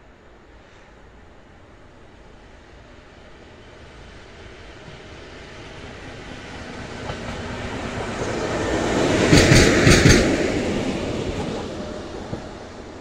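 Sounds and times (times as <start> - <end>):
diesel locomotive passing: 0.0 - 13.0
wheels clacking over rail joints: 6.9 - 12.7.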